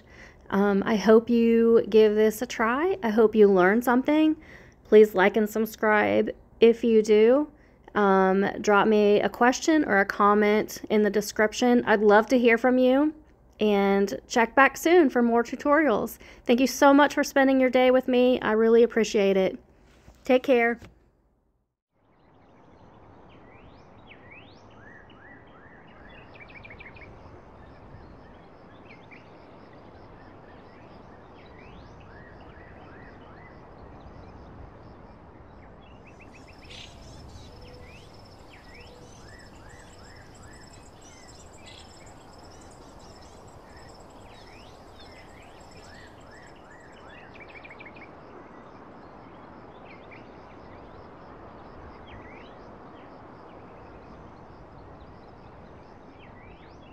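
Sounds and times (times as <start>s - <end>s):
outdoor background hiss: 0.0s - 56.9s
high steady bird trill: 35.9s - 48.2s
birds chirping: 36.0s - 48.0s.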